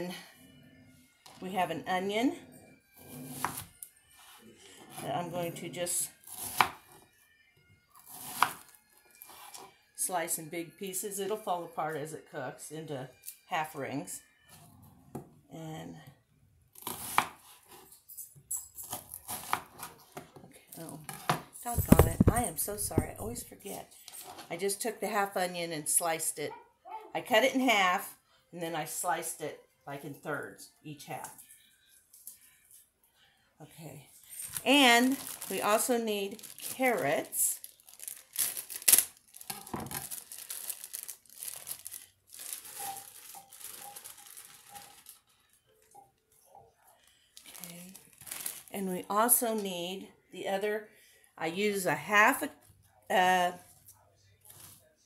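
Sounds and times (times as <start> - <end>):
plastic bag crinkling: 21.7 - 23.4, 34.3 - 45.8, 47.4 - 48.8.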